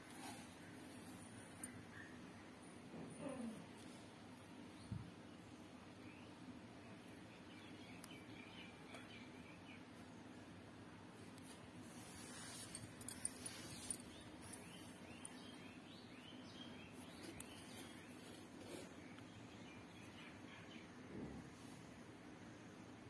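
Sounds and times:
small birds chirping: 12.0 - 21.0.

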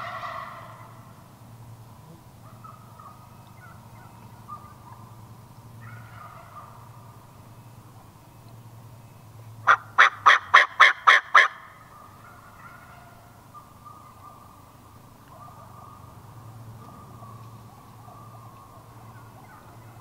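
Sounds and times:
turkey yelping: 0.0 - 1.1, 2.4 - 5.2, 5.8 - 7.2, 9.6 - 14.6, 15.2 - 16.2.

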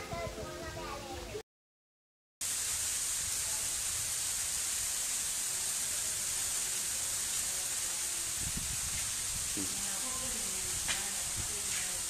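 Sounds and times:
ash and stones falling hiss: 2.4 - 12.0.

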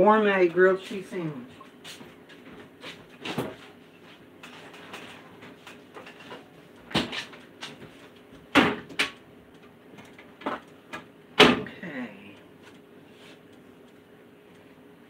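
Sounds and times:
knocks and bumps in kitchen: 6.9 - 9.2.

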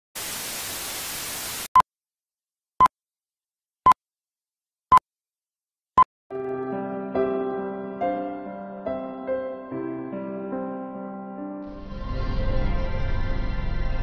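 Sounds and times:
tv static hiss: 0.2 - 1.7
soft piano music: 6.3 - 12.0.

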